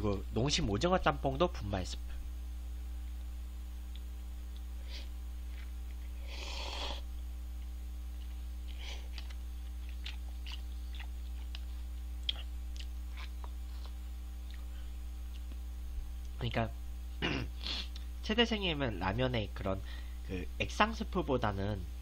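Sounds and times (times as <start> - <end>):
low electrical hum: 0.0 - 22.0
chewing with wet mouth clicks: 7.6 - 14.7, 15.3 - 15.6.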